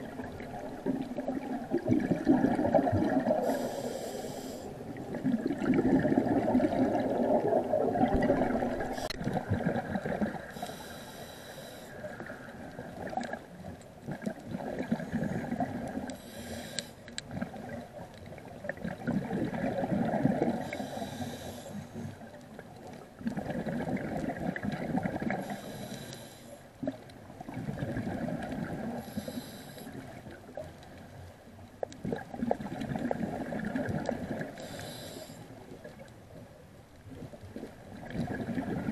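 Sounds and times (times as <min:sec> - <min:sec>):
bubbling exhaust underwater: 0:00.0 - 0:31.0, 0:31.8 - 0:36.2, 0:37.1 - 0:38.9
regulator inhale hiss: 0:03.4 - 0:04.8, 0:10.5 - 0:12.1, 0:16.2 - 0:17.1, 0:20.6 - 0:22.2, 0:25.4 - 0:26.7, 0:29.0 - 0:30.0, 0:34.6 - 0:35.6.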